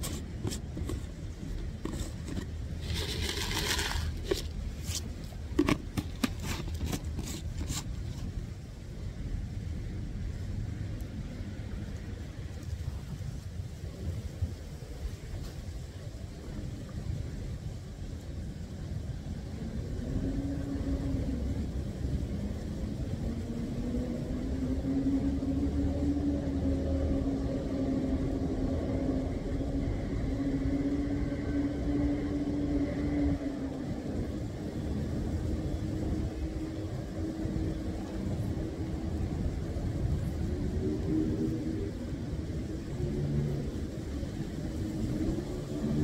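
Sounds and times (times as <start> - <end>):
motor rumbling hum: 0.0 - 11.9.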